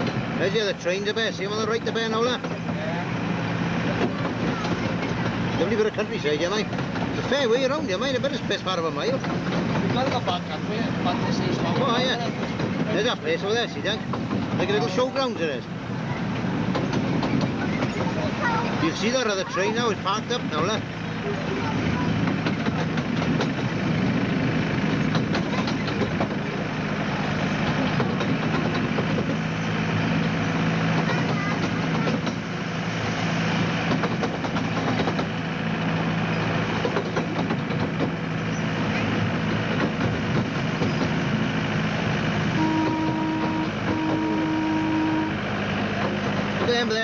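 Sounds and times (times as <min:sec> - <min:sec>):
miniature train engine hum: 0:00.0 - 0:47.0
wheels clattering on rails: 0:00.0 - 0:47.0
train horn: 0:42.5 - 0:45.5.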